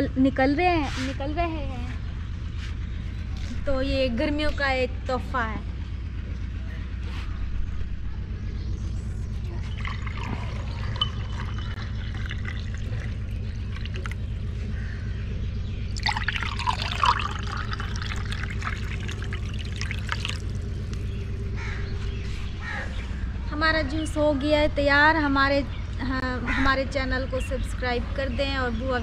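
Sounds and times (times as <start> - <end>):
low rumble: 0.0 - 29.0
juice pouring into glasses: 9.7 - 14.2, 16.0 - 20.6.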